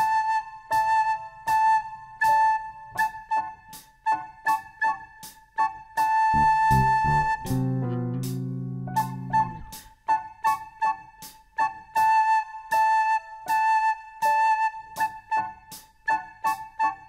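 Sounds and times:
recorder playing: 0.0s - 3.4s, 6.0s - 10.8s
keyboard accompaniment: 0.0s - 17.0s
low keyboard chord: 6.3s - 9.8s.

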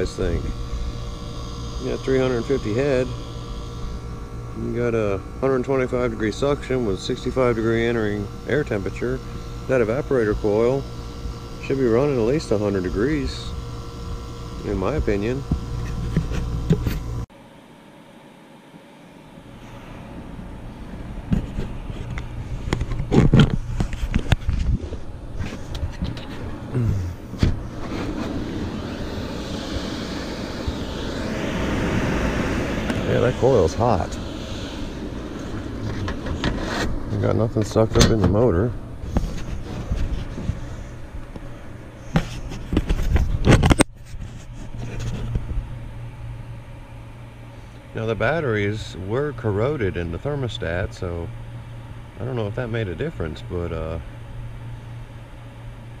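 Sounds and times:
heat pump humming: 0.0s - 56.0s
knocks and scrapes of handling: 15.4s - 17.1s, 21.3s - 26.6s, 35.6s - 37.3s, 39.0s - 41.0s, 42.0s - 45.6s.

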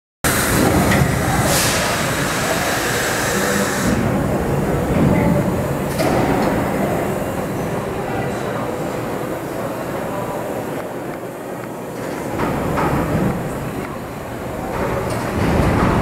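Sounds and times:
subway train rumbling: 0.2s - 16.0s
short hisses: 1.4s - 4.0s.

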